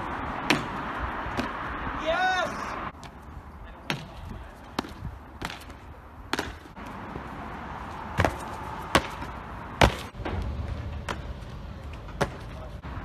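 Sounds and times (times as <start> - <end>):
outdoor background noise: 0.0 - 13.0
feet and hands striking stone: 3.9 - 6.8, 8.2 - 10.2.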